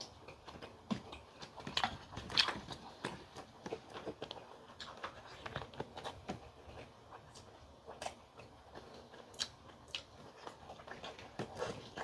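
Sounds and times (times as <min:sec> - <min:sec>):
person chewing with mouth smacks: 0:00.0 - 0:12.0.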